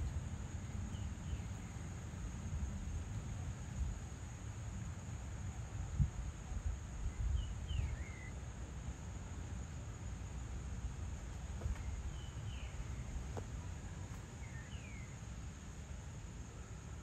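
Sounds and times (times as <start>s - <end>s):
crickets droning: 0.0s - 17.0s
bird gliding chirps: 7.2s - 8.4s.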